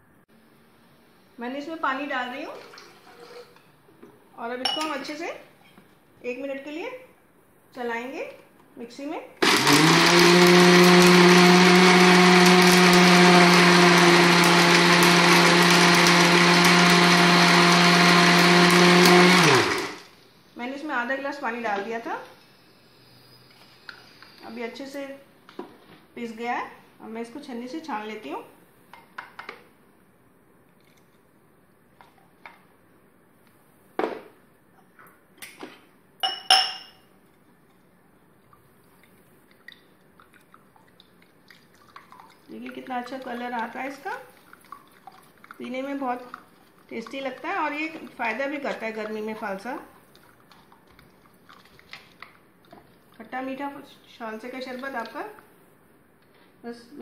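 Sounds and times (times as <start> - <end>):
mixer grinder running: 9.4 - 20.1.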